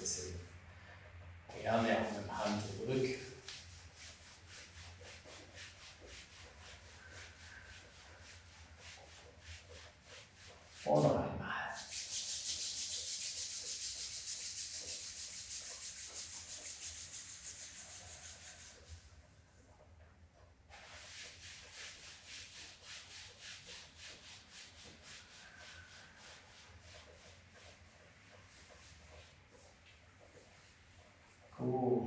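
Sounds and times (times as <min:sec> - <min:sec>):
hands rubbing over a shirt: 0:01.5 - 0:19.0
palms rubbing together: 0:01.5 - 0:19.3, 0:20.7 - 0:31.9.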